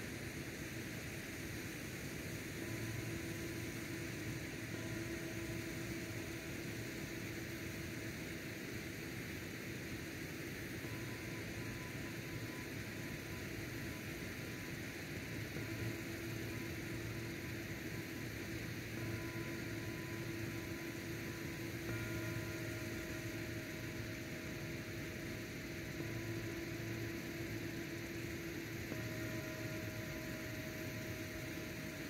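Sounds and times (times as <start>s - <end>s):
electrical hum: 0.0s - 32.0s
steady hiss: 0.0s - 32.0s
thin high tone: 15.3s - 32.0s.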